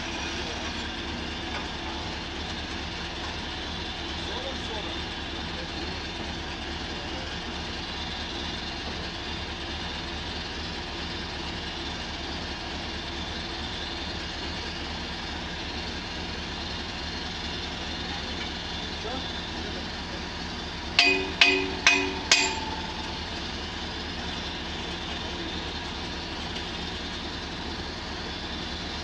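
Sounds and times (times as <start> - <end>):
drilling rig engine droning: 0.0 - 29.0.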